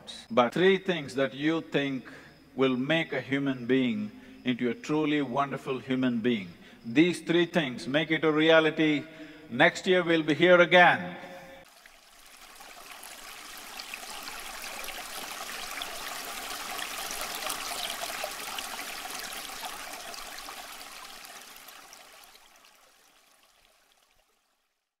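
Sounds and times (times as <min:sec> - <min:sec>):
rushing splashing water: 0:11.7 - 0:24.3.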